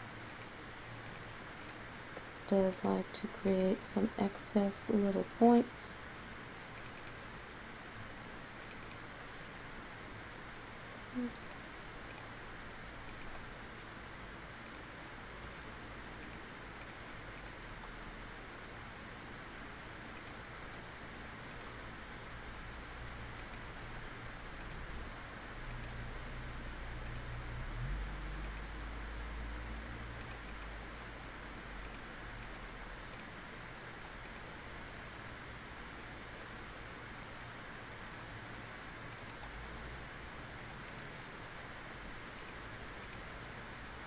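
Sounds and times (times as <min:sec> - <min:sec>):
background hiss and hum: 0:00.0 - 0:44.0
computer mouse clicking: 0:00.3 - 0:02.3, 0:06.8 - 0:07.2, 0:08.6 - 0:09.1, 0:11.3 - 0:12.3, 0:13.1 - 0:14.0, 0:14.6 - 0:14.9, 0:16.2 - 0:17.6, 0:20.1 - 0:20.8, 0:21.5 - 0:21.7, 0:23.4 - 0:24.9, 0:25.7 - 0:26.4, 0:27.0 - 0:27.3, 0:28.4 - 0:28.7, 0:30.2 - 0:30.8, 0:31.8 - 0:33.3, 0:34.2 - 0:34.5, 0:39.1 - 0:40.1, 0:40.8 - 0:41.1, 0:42.4 - 0:43.2.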